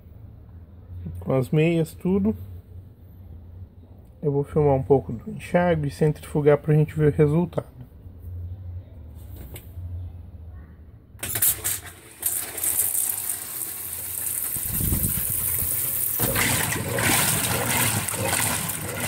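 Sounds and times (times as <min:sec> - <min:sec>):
washing machine motor hum: 0:11.2 - 0:19.0
water churning and splashing: 0:13.9 - 0:19.0.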